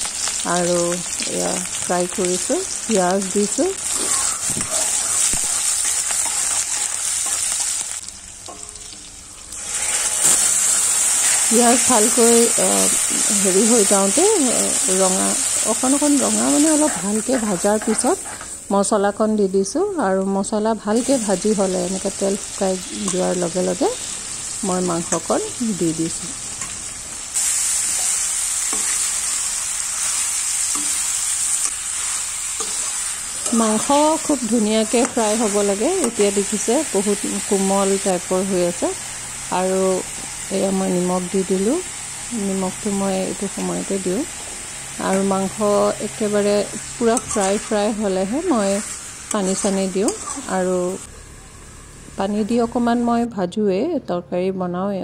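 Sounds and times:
onions sizzling in hot oil: 0.0s - 53.1s
metal spatula scraping pan: 3.9s - 7.6s, 47.1s - 47.8s, 48.7s - 50.5s.

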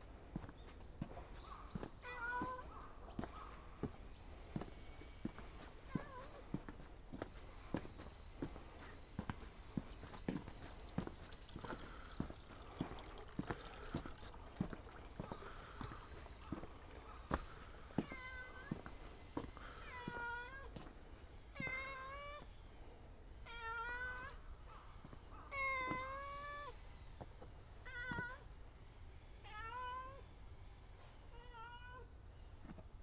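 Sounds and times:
cat meowing: 2.0s - 2.8s.

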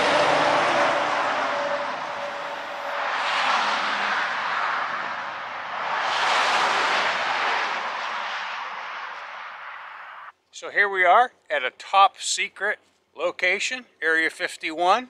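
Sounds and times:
tyres hissing on wet road: 0.0s - 10.3s.

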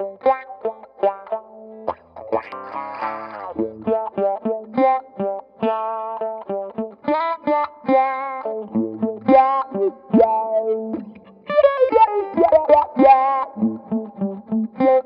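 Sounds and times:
electric guitar with auto-wah filter: 0.0s - 15.0s.

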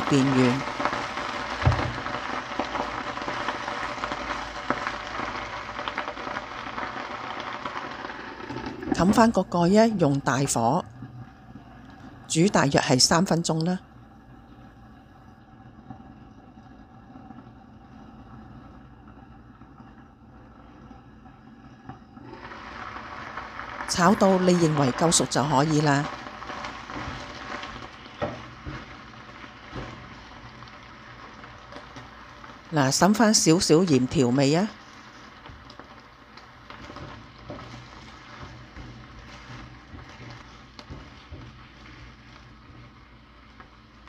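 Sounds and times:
leaves sizzling in a wok: 0.0s - 10.8s, 22.2s - 44.0s.

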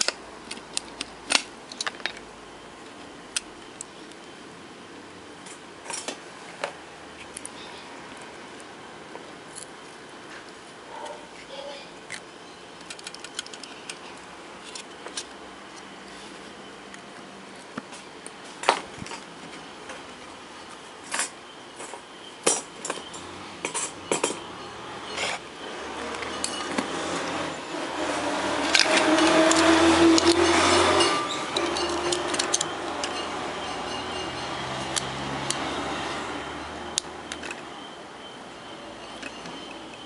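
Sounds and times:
small tools clicking and clinking: 0.0s - 4.2s, 12.1s - 15.9s, 21.1s - 24.5s, 26.0s - 27.0s, 28.6s - 35.8s.

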